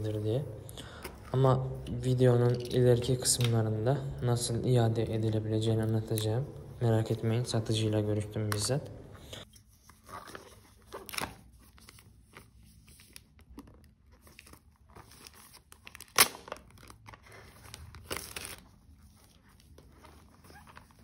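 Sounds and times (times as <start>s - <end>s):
plastic wrap crinkling: 10.0s - 21.0s.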